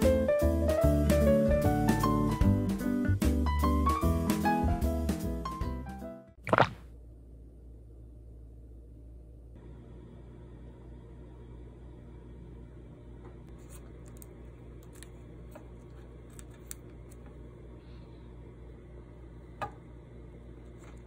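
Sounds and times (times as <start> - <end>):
steady low hum: 6.5 - 21.0.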